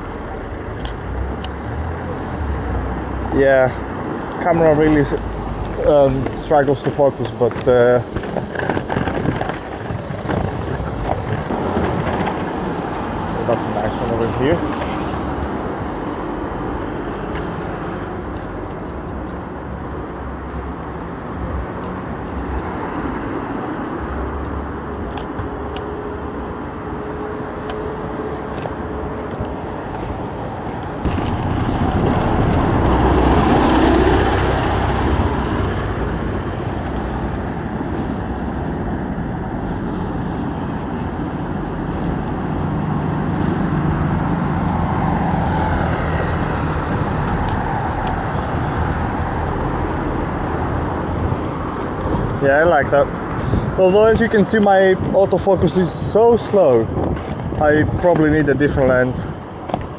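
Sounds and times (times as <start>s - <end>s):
passing cars: 0.0s - 59.9s
vehicle passing close: 26.5s - 53.9s.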